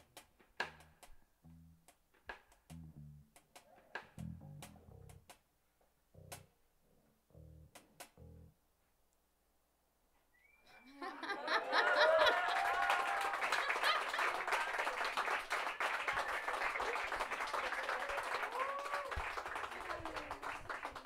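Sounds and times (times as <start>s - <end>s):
whoops: 10.6s - 15.2s, 16.0s - 20.8s
audience applauding and cheering: 11.2s - 21.0s.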